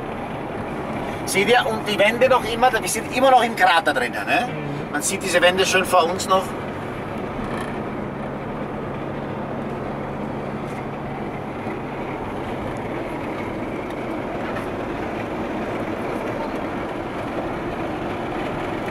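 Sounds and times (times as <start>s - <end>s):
tyres rolling on road: 0.0s - 18.9s
van engine running: 0.0s - 18.9s.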